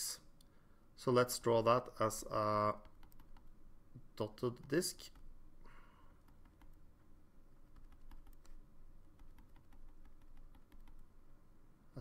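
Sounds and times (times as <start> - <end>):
stylus tapping on drawing tablet: 9.1 - 11.0.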